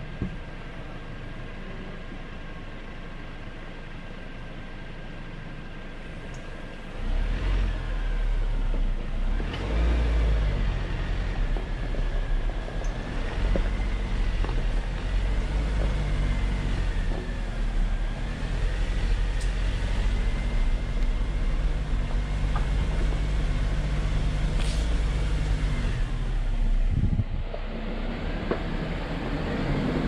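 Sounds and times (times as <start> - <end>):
engine rumbling: 0.0 - 30.0
tires rolling over gravel: 7.0 - 30.0.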